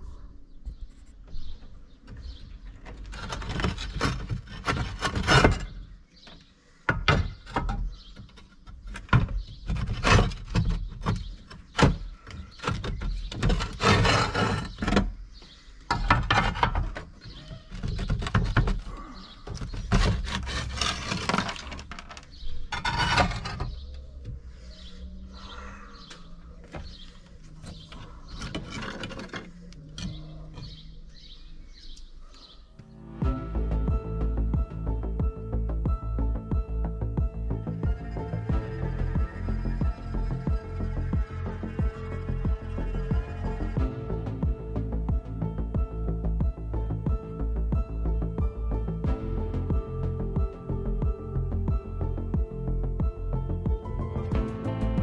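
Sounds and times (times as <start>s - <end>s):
clay roof tiles knocking and scraping: 0.6s - 24.5s, 26.1s - 31.0s.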